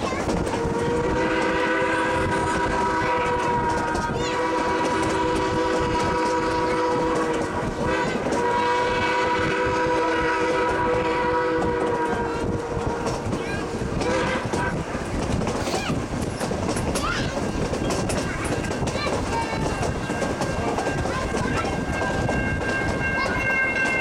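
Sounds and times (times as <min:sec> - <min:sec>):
train rumbling on rails: 0:00.0 - 0:24.0
steam locomotive chime whistle: 0:00.6 - 0:13.1, 0:20.0 - 0:24.0.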